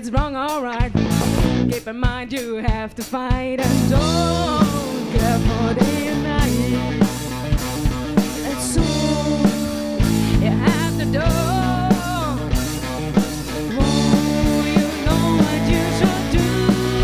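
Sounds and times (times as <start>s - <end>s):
drum kit beat: 0.0s - 17.0s
live rock band playing: 0.0s - 17.0s
sliding melody line: 8.4s - 17.0s.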